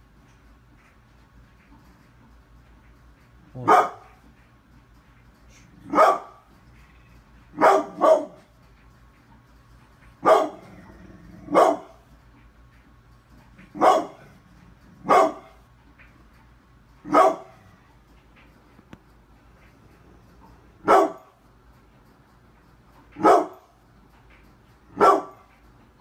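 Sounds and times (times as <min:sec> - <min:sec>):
dog barking: 0:03.6 - 0:04.2, 0:05.8 - 0:06.4, 0:07.5 - 0:08.5, 0:10.2 - 0:10.8, 0:11.4 - 0:12.0, 0:13.7 - 0:14.3, 0:15.0 - 0:15.6, 0:17.0 - 0:17.6, 0:20.8 - 0:21.3, 0:23.2 - 0:23.7, 0:24.9 - 0:25.5.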